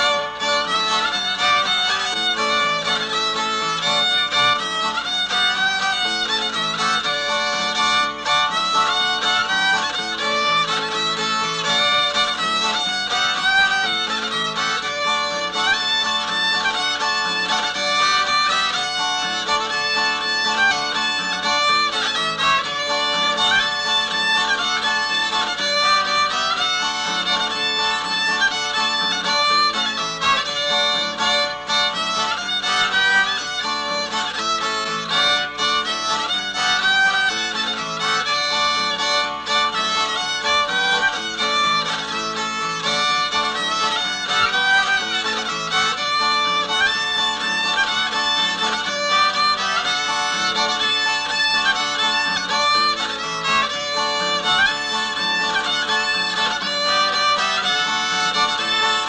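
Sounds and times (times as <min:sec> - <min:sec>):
fiddle tune: 0:00.0 - 0:59.0.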